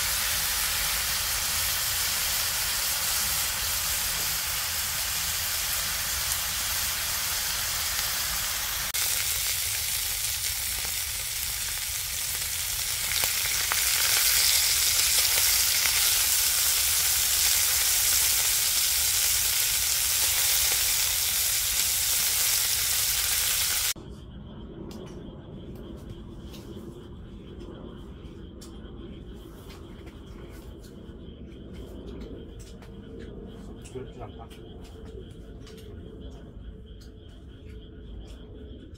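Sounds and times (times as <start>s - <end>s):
meat sizzling in a skillet: 0.0s - 24.0s.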